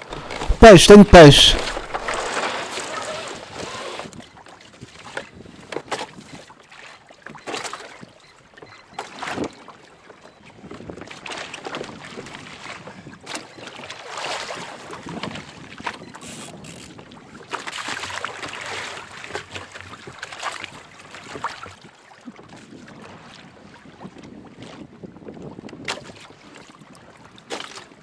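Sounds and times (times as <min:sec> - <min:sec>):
water splashes: 0:00.0 - 0:03.4
sea water slapping against hull: 0:01.6 - 0:03.0, 0:25.6 - 0:26.7.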